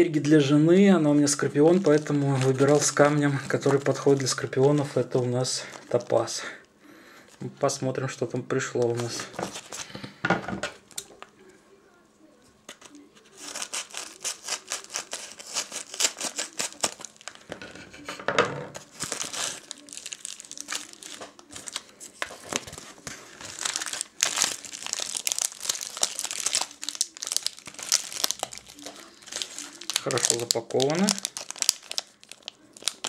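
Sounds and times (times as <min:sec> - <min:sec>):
bubble wrap crinkling: 0:00.0 - 0:07.7, 0:08.6 - 0:10.0, 0:12.7 - 0:17.6, 0:18.8 - 0:33.0
plastic bag rustling: 0:00.4 - 0:06.6, 0:08.7 - 0:10.2, 0:12.8 - 0:17.6, 0:18.7 - 0:33.0
scissors cutting paper mailer: 0:13.4 - 0:17.1.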